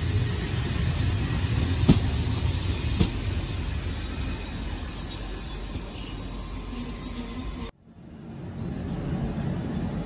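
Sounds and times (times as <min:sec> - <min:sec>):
train wheels rumbling on rails: 0:00.0 - 0:07.2
faint high brake squeal: 0:03.2 - 0:07.7.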